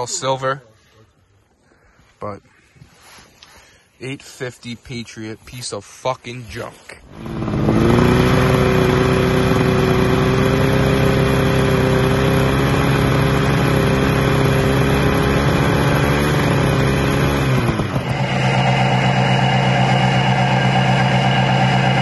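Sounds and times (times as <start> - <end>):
different steady engine: 7.0 - 22.0
two-stroke engine running: 7.1 - 22.0.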